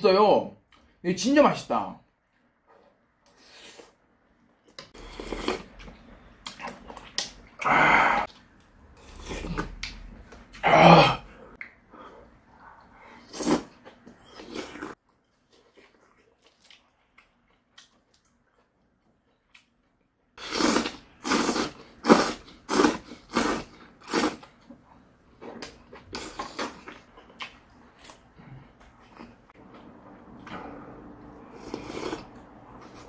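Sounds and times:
loud slurping: 20.4 - 24.4.

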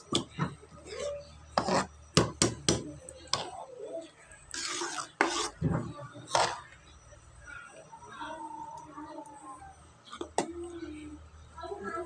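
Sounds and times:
spoon stirring thick porridge: 0.0 - 7.0, 10.0 - 10.6.

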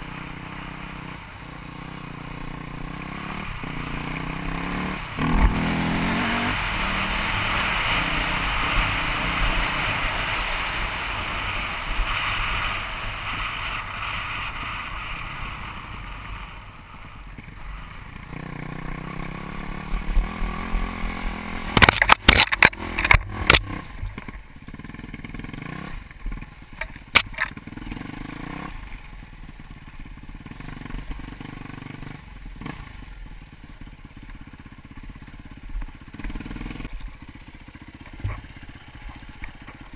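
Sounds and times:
dirt bike engine running: 0.0 - 39.9
knocks and rattles over rough ground: 21.7 - 24.8, 26.1 - 28.0, 33.8 - 39.9.

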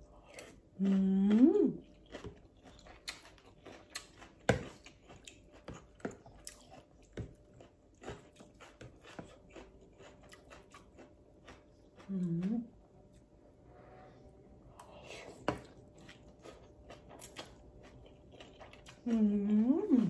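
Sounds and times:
chewing noodles: 0.0 - 12.8, 15.5 - 20.0
person humming mmm: 0.8 - 1.8, 12.0 - 12.7.

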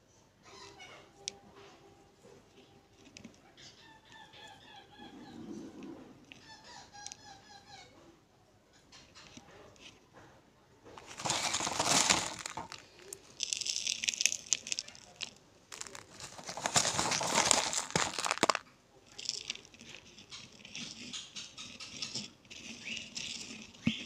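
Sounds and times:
powder balls crunching by hand: 11.0 - 21.2.

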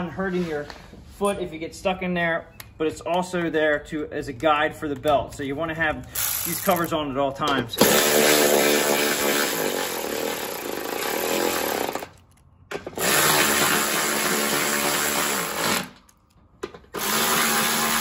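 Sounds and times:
electric ratchet whirring: 6.1 - 7.0, 7.8 - 16.2, 16.9 - 18.0.

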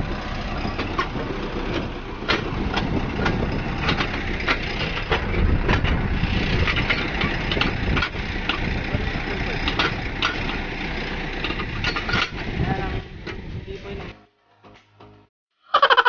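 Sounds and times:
tractor engine running: 0.0 - 14.1
sharp clicks and knocks: 0.8 - 8.8, 9.6 - 10.6, 11.4 - 12.5.

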